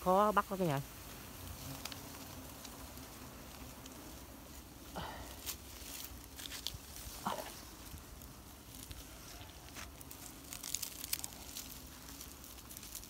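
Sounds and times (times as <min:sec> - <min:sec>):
leaves rustling and crackling: 0:00.0 - 0:13.0
sharp crackles: 0:00.0 - 0:13.0.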